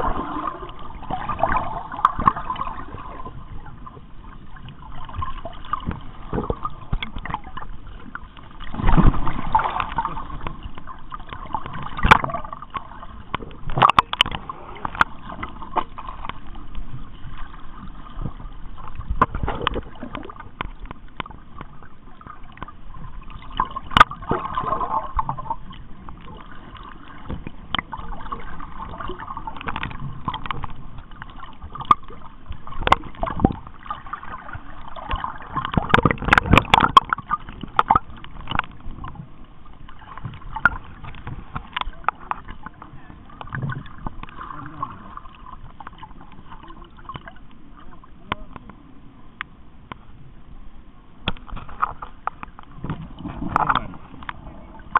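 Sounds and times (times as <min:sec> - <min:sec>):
seawater sloshing and gurgling: 0:00.0 - 0:49.2, 0:51.2 - 0:54.9
sharp clicks and knocks: 0:35.1 - 0:39.2.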